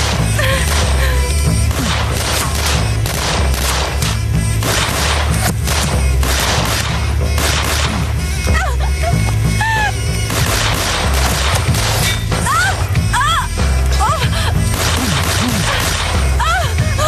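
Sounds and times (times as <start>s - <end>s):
gunshots and impacts: 0.0s - 8.5s, 10.2s - 12.5s, 14.5s - 16.4s
low music drone: 0.0s - 17.0s
woman crying out: 0.4s - 1.5s, 8.5s - 10.1s, 12.4s - 14.6s, 15.5s - 17.0s.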